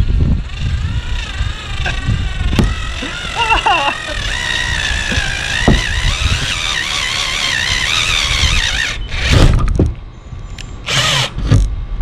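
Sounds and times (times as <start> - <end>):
drill bit squealing through metal: 0.6 - 9.4.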